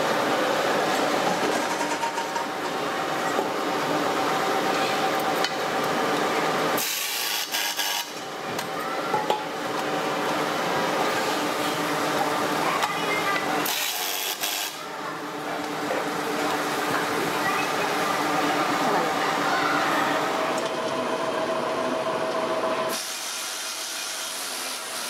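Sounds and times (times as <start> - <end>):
workshop machinery noise: 0.0 - 25.0
pneumatic screwdriver air hiss: 6.8 - 8.1, 22.9 - 24.5.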